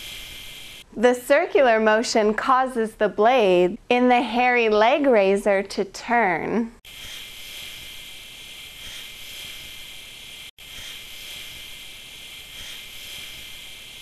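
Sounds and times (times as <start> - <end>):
electric shaver buzzing: 6.9 - 8.0, 10.6 - 11.8.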